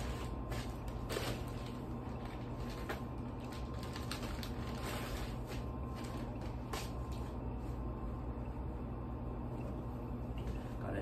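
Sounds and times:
clothing packaging crinkling: 0.0 - 7.3
steady low hum: 0.0 - 11.0.

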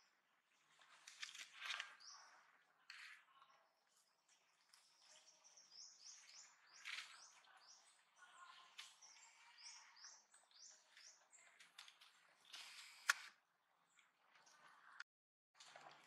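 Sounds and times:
faint high bird chirps: 1.7 - 13.3.

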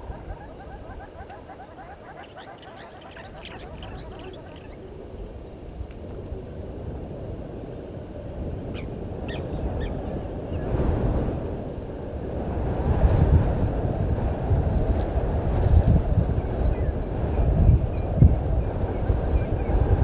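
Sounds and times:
faint bird chirps: 0.0 - 4.9
wind buffeting microphone: 0.0 - 20.0.

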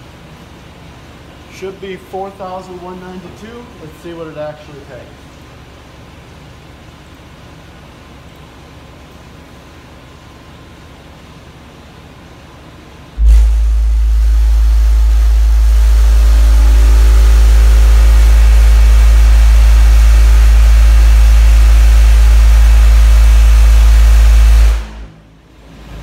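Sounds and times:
buzzing rattle: 13.2 - 25.0
loud deep bass tone: 13.2 - 25.4.

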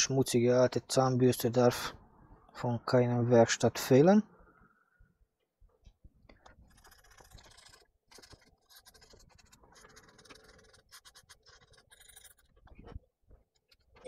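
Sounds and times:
toothbrush scratching circuit board: 6.5 - 14.0.

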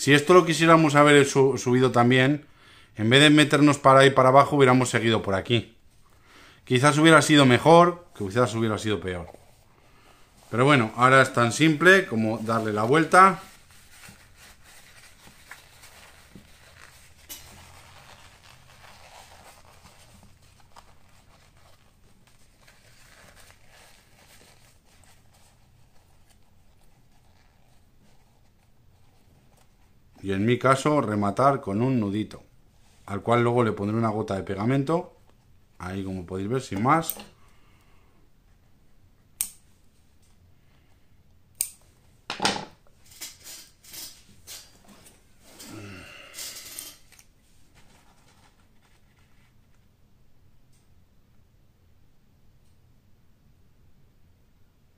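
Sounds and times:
leather pouch rustling: 9.2 - 30.0.

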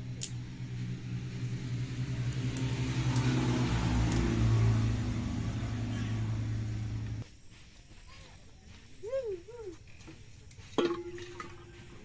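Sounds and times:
vehicle engine running: 0.0 - 7.2.

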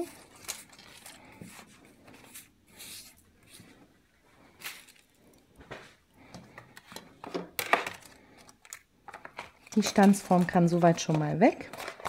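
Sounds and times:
paper scraps rustling: 9.2 - 12.0.

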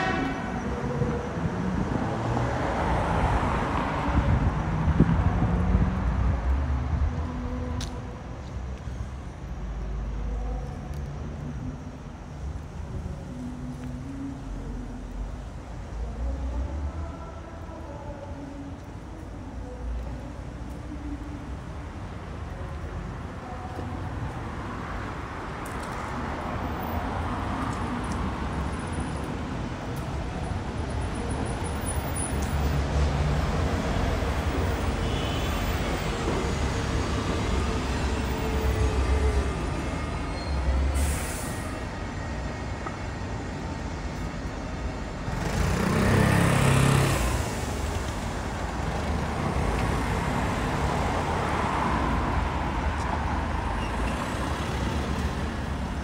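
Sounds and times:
vehicles passing: 0.0 - 56.0
short hiss: 41.0 - 41.8.

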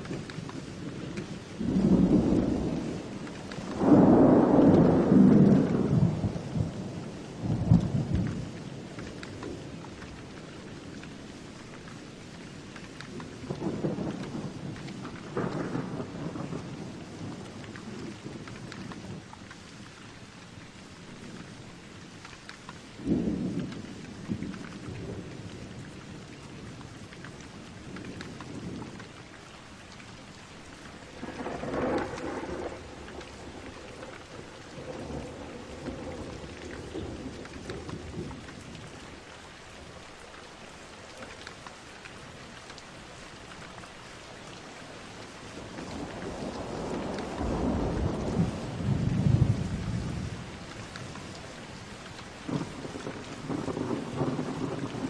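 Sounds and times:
thunder rumbling: 0.0 - 11.5, 13.1 - 19.3, 23.0 - 29.4, 30.6 - 40.3, 45.2 - 55.0
steady rain falling: 0.0 - 55.0.

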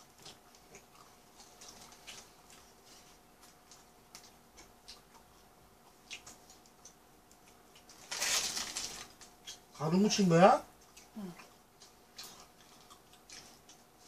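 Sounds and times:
faint steady hum: 0.0 - 14.0
paper wrapper crinkling: 7.9 - 9.4.

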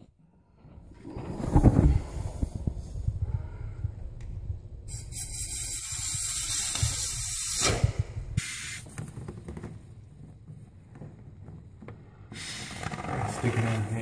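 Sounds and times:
spray foam hissing: 4.9 - 7.8, 8.4 - 8.9.

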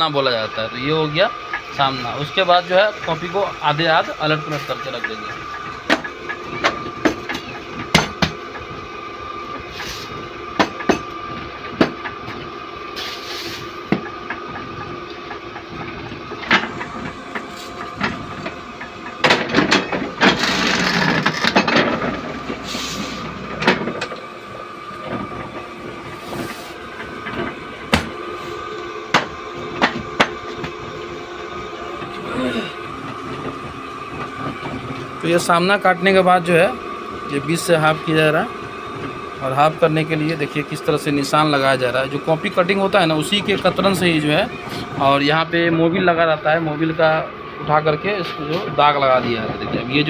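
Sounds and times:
paper cutting machine humming: 14.4 - 50.0.

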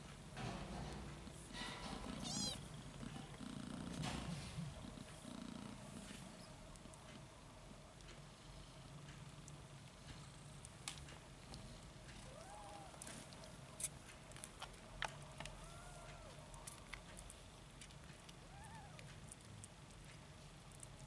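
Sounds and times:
low steady hum: 0.0 - 21.0
kittens mewing: 2.0 - 2.6, 18.4 - 19.1.

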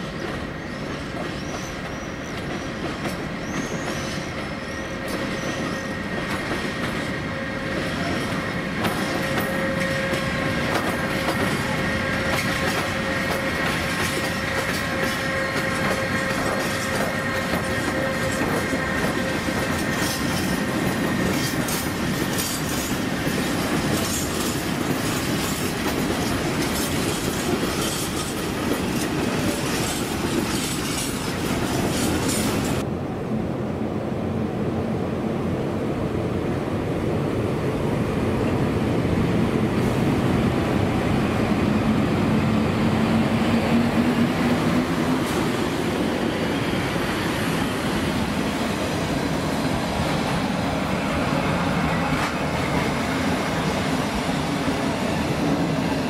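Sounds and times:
wheels rumbling on rail: 0.0 - 56.0
high squeal: 3.4 - 6.1.

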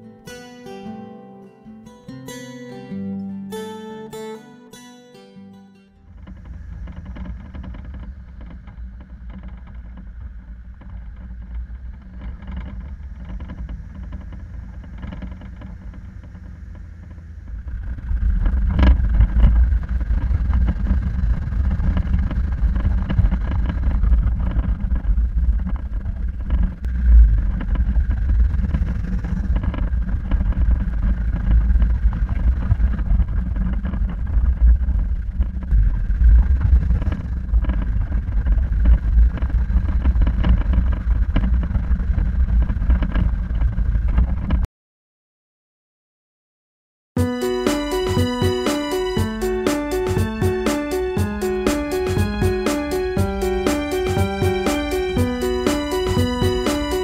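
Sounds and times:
vehicle engine rumble: 6.0 - 44.6.

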